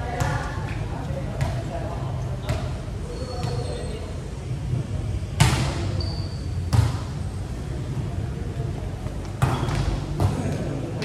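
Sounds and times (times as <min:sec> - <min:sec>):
shoe squeak: 0:03.0 - 0:04.2, 0:05.9 - 0:06.7, 0:09.4 - 0:10.1
volleyball slaps: 0:05.4 - 0:05.9, 0:06.7 - 0:07.1, 0:09.2 - 0:10.7.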